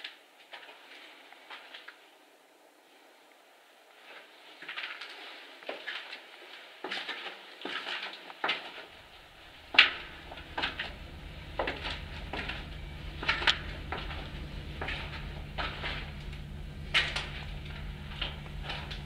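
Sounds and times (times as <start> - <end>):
low steady hum: 8.9 - 19.0.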